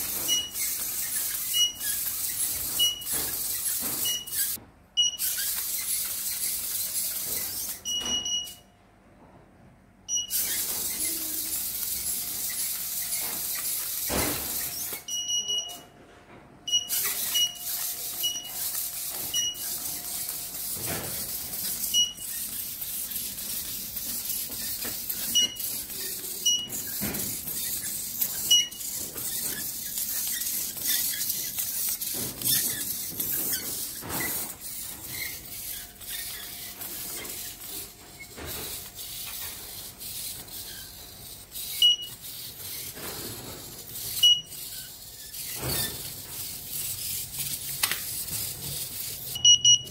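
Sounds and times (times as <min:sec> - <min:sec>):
robot feet tapping on tiles: 0:00.0 - 0:04.6, 0:10.3 - 0:15.1, 0:16.7 - 0:43.0.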